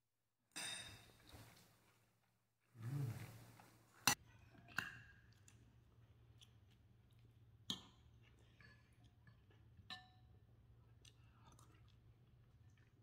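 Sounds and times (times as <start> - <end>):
metal spoon clinking on ceramic bowl: 0.5 - 1.2.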